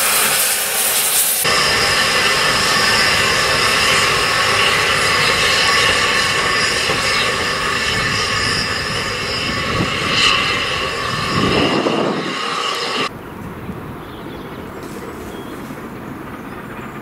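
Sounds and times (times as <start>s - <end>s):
steam hissing: 0.0s - 13.1s.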